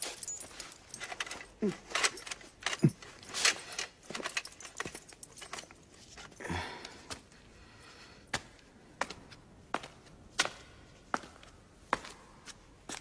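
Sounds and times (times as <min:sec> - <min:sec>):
rope being untied: 0:00.0 - 0:07.0.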